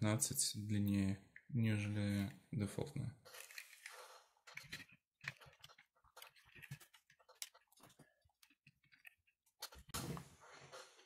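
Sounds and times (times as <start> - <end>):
plastic parts clicking and knocking: 3.2 - 10.2.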